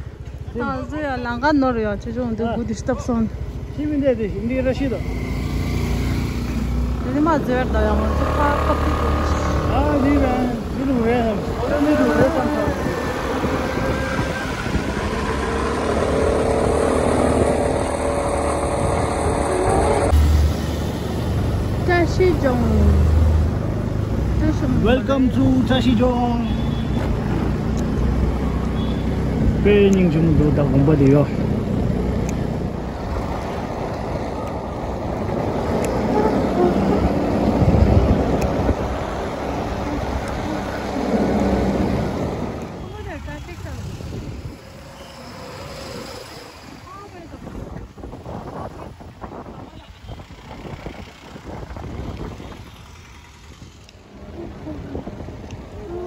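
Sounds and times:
wind buffeting microphone: 0:06.6 - 0:20.2, 0:31.4 - 0:44.9, 0:45.6 - 0:56.0.

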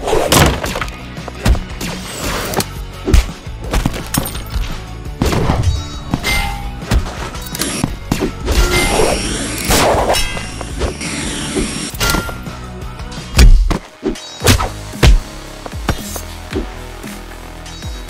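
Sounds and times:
background music: 0:00.0 - 0:18.0.

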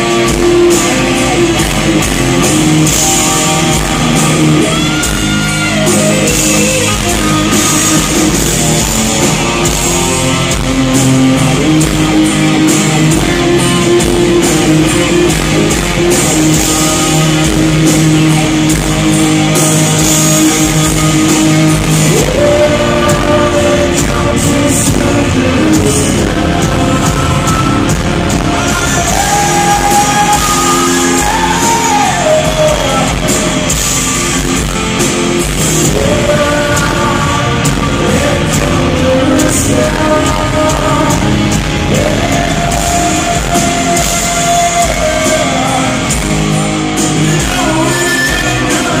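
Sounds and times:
rock band playing live: 0:00.0 - 0:49.0
person singing long held notes: 0:19.8 - 0:34.0, 0:35.4 - 0:49.0.

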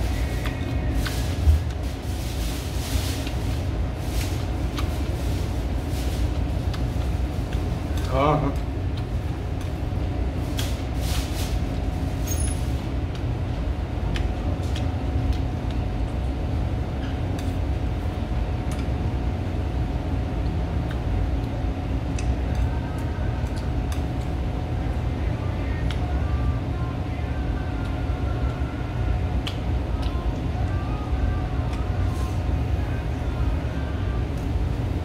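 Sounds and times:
faint hum: 0:00.0 - 0:35.0
steady low rumble: 0:00.0 - 0:35.0.

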